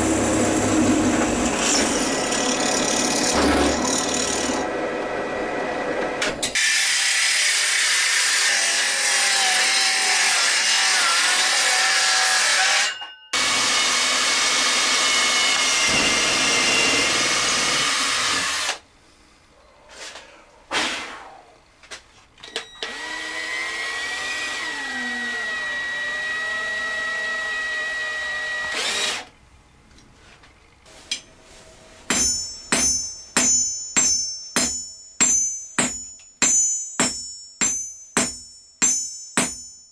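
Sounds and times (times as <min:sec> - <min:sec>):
power drill grinding whir: 0:00.0 - 0:05.5, 0:06.6 - 0:18.8, 0:22.5 - 0:29.3
hammer striking metal: 0:32.1 - 0:39.9.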